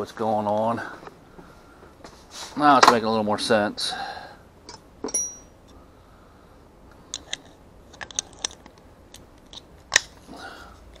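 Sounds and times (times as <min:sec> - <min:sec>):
plastic parts clicking: 0:07.1 - 0:10.2.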